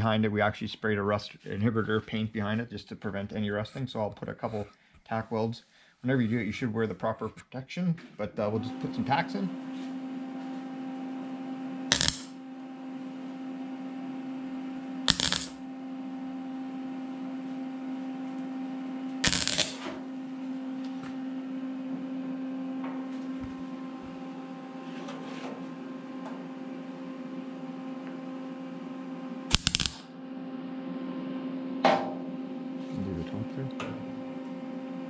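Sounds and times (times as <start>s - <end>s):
welder hum: 11.8s - 12.5s, 14.9s - 16.2s, 19.2s - 21.2s, 29.3s - 30.8s
welding arc bursts: 11.9s - 12.4s, 15.1s - 15.6s, 19.2s - 19.9s, 29.5s - 30.1s.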